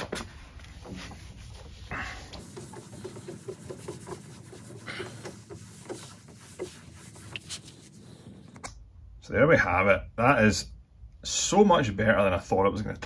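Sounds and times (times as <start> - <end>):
cloth rubbing on roof panel: 0.0 - 8.6.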